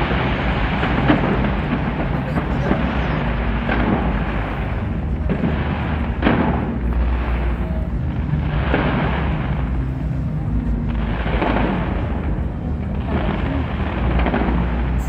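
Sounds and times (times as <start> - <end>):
fireworks bangs and crackling: 0.0 - 15.0.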